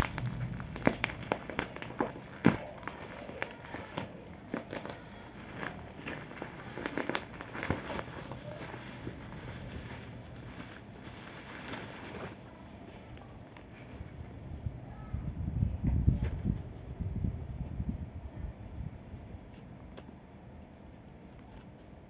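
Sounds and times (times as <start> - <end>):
plastic wrapping crinkling: 0.0 - 14.2.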